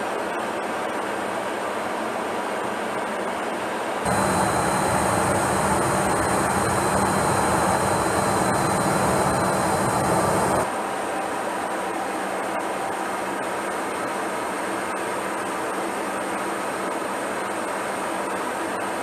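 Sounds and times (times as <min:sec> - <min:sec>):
aircraft cabin engine noise: 0:04.1 - 0:10.7
thin steady whine: 0:04.1 - 0:10.9.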